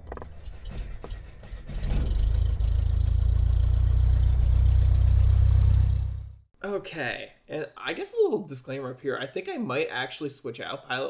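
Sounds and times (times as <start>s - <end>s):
propeller plane engine drone: 0.0s - 6.3s.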